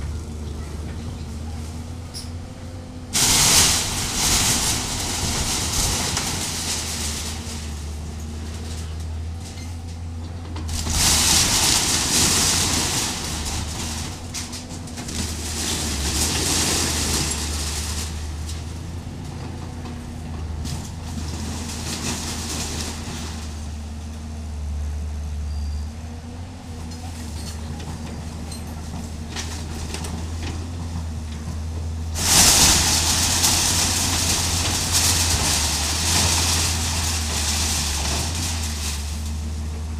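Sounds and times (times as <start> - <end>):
diesel engine running: 0.0 - 39.9
timber crunching: 1.3 - 24.4, 28.8 - 39.9
metal sheeting scraping: 3.2 - 8.0, 10.7 - 18.5, 32.2 - 39.6.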